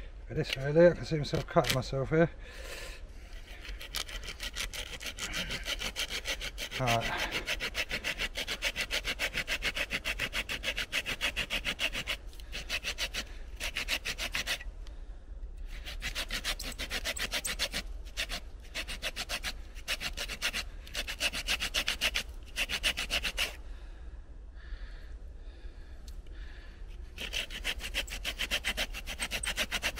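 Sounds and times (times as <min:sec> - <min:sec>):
hand saw cutting wood: 0:03.4 - 0:14.7, 0:15.7 - 0:23.6, 0:27.1 - 0:29.9.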